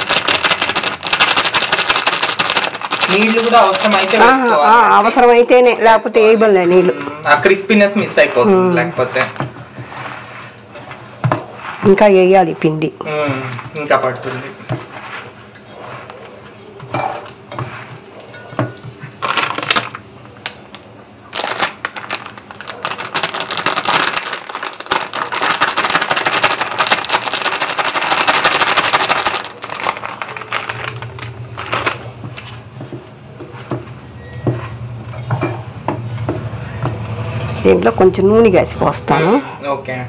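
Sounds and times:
plastic bag crinkling: 0.0s - 5.4s, 19.1s - 32.9s
hands mixing onions in steel bowl: 0.0s - 19.9s, 21.8s - 39.3s.

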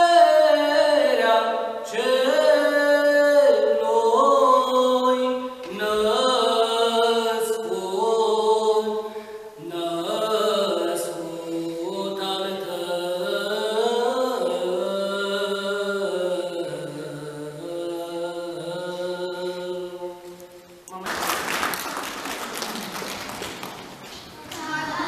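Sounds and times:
applause: 21.0s - 25.0s
children's choir chanting: 24.4s - 25.0s.

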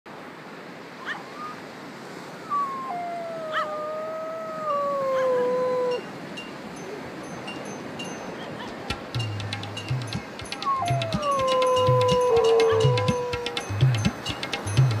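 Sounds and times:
dog howling: 2.4s - 6.1s, 10.6s - 13.7s.

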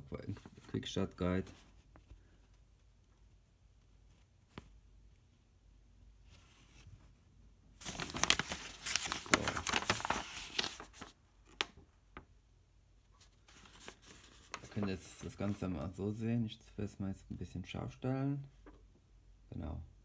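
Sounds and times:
paper leaflet crackling and rustling: 7.8s - 12.3s, 13.2s - 15.9s.

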